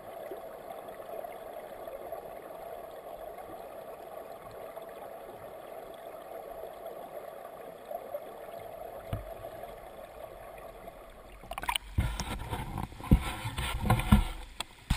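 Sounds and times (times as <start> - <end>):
stream water rushing underwater: 0.0 - 14.9
water splashing: 8.6 - 14.9.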